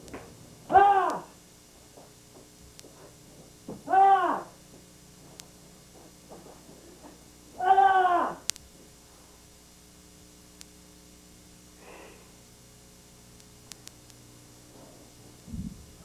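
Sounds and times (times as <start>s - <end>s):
tape hiss: 0.0s - 16.0s
faint ticks: 2.7s - 3.0s, 5.3s - 5.6s, 8.5s - 8.7s, 10.5s - 10.8s, 13.3s - 14.3s
low hum: 6.8s - 16.0s
man exhaling sharply: 11.8s - 12.4s.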